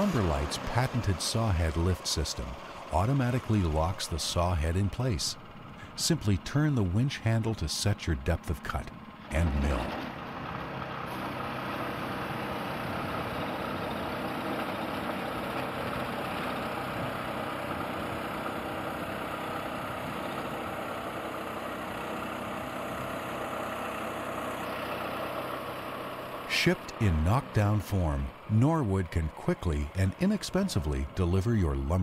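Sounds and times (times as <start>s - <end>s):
band saw cutting log: 0.0s - 7.6s
engine running: 0.0s - 32.0s.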